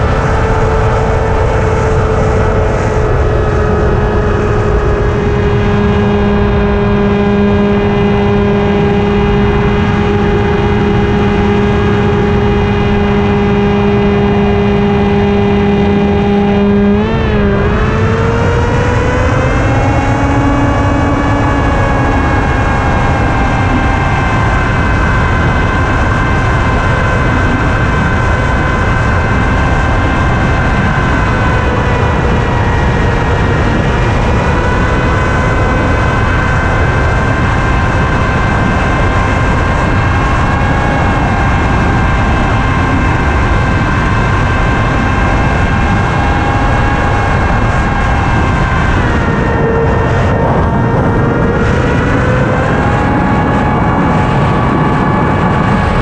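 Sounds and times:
model aircraft motor whining: 0.0s - 56.0s
wind rushing: 14.6s - 56.0s.

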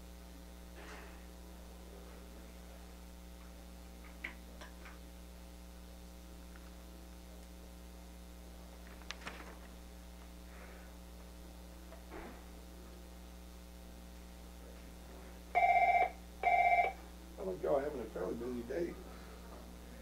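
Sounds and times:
electrical mains hum: 0.0s - 20.0s
papers rustling in a binder: 8.8s - 9.8s.

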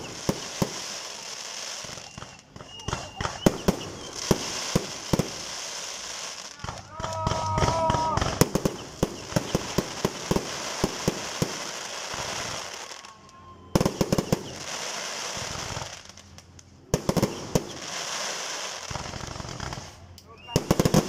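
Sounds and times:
firework shells bursting: 0.0s - 13.2s
fireworks crackling: 0.0s - 21.0s.

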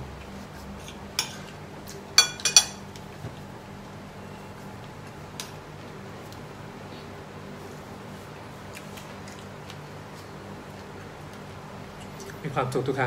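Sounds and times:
cutlery clinking on plate: 2.2s - 2.8s.

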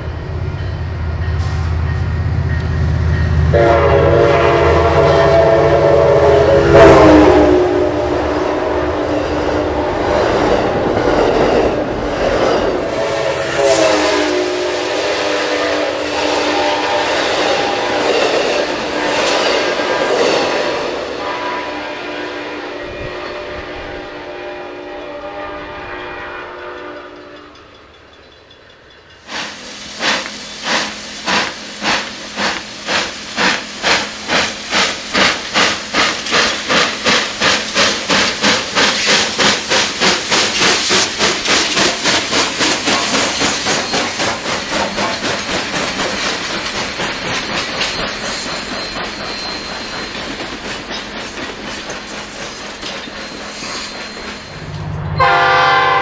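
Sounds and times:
train cars clickety-clack: 0.0s - 22.0s, 25.8s - 56.0s
steam locomotive exhaust chuffs: 1.2s - 56.0s
distant train horn: 1.3s - 11.0s, 12.7s - 27.7s, 54.5s - 56.0s
hissing steam: 12.7s - 21.5s, 29.2s - 54.5s.

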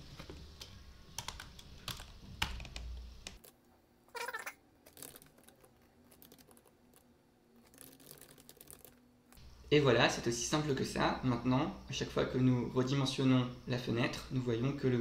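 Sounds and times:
keyboard typing: 4.9s - 7.0s, 7.6s - 9.0s.

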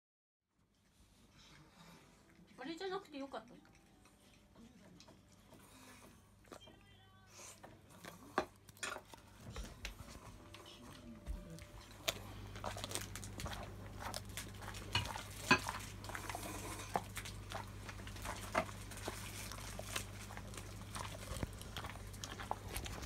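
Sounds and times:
dog crunching a treat: 7.4s - 23.0s.

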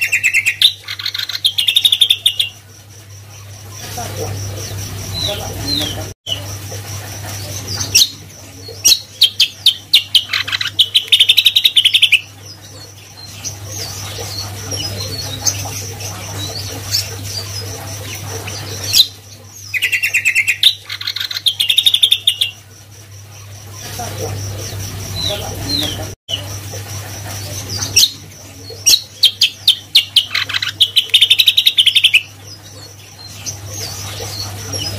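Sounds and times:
sharp bird calls: 0.0s - 2.7s, 8.9s - 22.6s
bird chirping rapidly: 0.0s - 6.5s, 8.8s - 22.7s, 28.8s - 34.9s.

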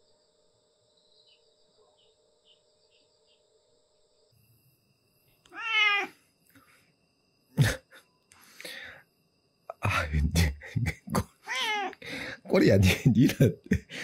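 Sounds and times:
cat meowing: 5.5s - 6.2s, 11.5s - 12.0s.

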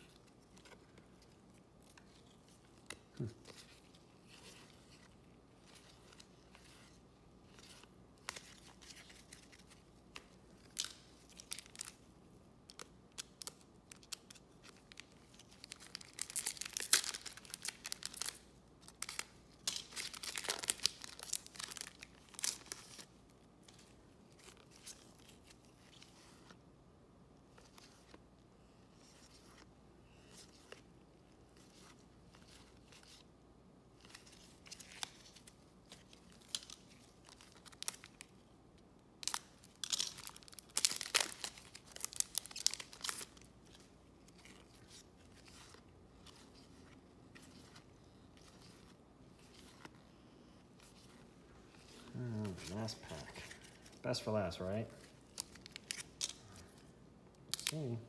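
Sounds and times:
wrapper crinkling and tearing: 0.2s - 12.1s, 12.7s - 23.1s, 34.0s - 38.4s, 39.2s - 47.8s, 51.7s - 54.2s, 55.0s - 56.8s, 57.5s - 58.0s.

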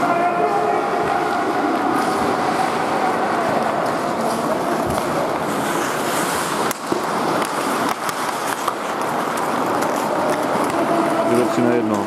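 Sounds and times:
skate blades scraping ice: 1.5s - 12.0s
sticks clacking on puck: 3.8s - 12.0s.

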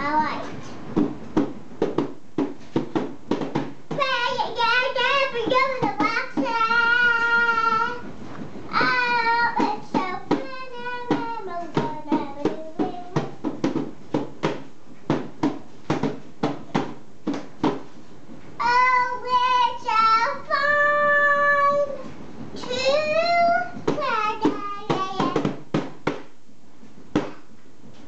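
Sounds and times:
hands beating toy drum: 1.0s - 8.0s, 8.7s - 17.9s, 22.6s - 26.3s
boy singing: 3.9s - 8.1s, 8.7s - 13.4s, 18.6s - 25.6s.

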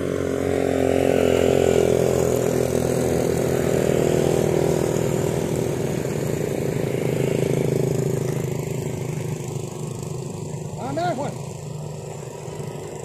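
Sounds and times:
engine running steadily: 0.0s - 13.0s.

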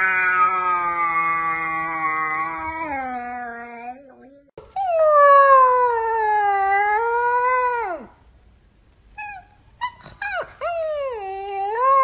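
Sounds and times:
puppy howling: 0.0s - 4.0s
puppy whimpering: 9.2s - 12.0s.

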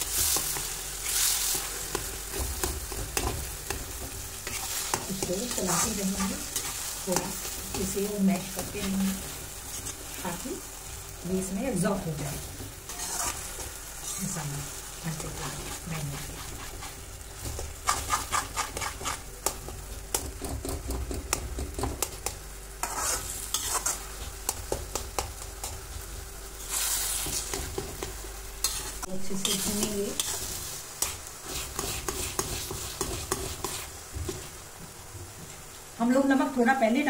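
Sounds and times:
food sizzling in oil: 0.0s - 37.0s
metal spatula scraping a pan: 0.1s - 10.0s, 12.9s - 14.5s, 15.2s - 17.0s, 17.8s - 19.2s, 22.8s - 24.6s, 26.6s - 28.0s, 28.6s - 33.9s.

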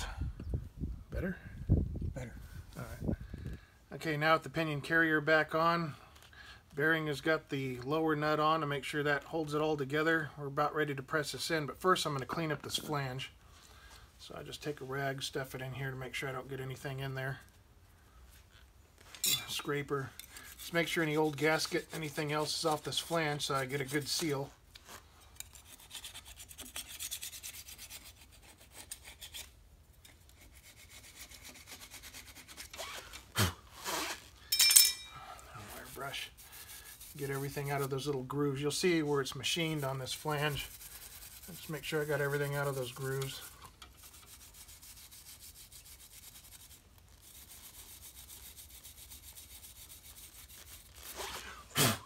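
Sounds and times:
hand scraper scraping metal: 19.2s - 24.5s.

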